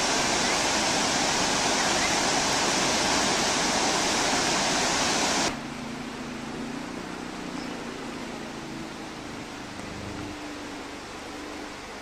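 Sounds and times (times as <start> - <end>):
floodwater rushing over weir: 0.0 - 5.6.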